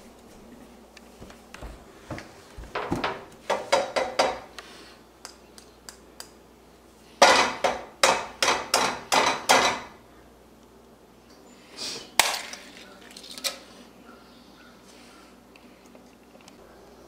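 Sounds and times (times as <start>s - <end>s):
egg knocking on frying pan: 7.2s - 9.9s.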